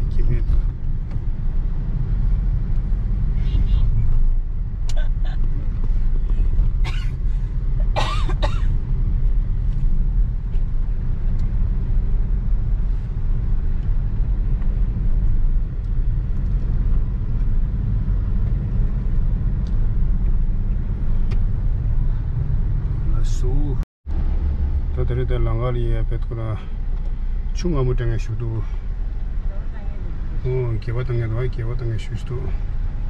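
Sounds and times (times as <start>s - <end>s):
car cabin road rumble: 0.0s - 33.0s
person coughing: 6.8s - 7.2s, 7.9s - 8.7s.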